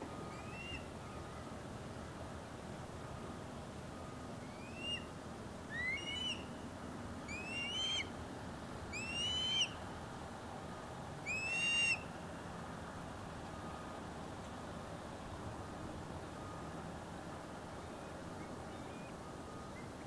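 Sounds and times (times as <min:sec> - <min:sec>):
osprey whistled calls: 0:00.2 - 0:00.9, 0:04.4 - 0:05.1, 0:05.7 - 0:06.6, 0:07.2 - 0:08.1, 0:08.9 - 0:09.8, 0:11.2 - 0:12.1, 0:18.4 - 0:20.0.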